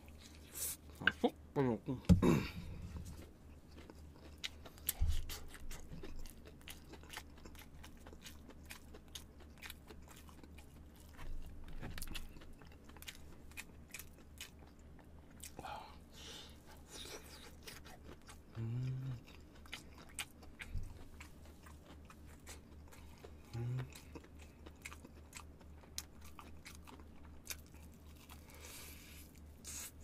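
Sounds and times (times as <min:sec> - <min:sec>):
chewing crispy fried chicken: 0:02.5 - 0:30.0
person humming low: 0:18.6 - 0:19.2, 0:23.5 - 0:23.9.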